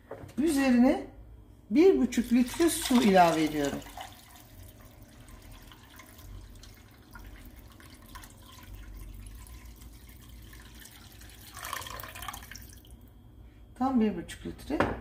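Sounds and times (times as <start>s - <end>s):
water pouring into a pot: 2.2s - 13.0s.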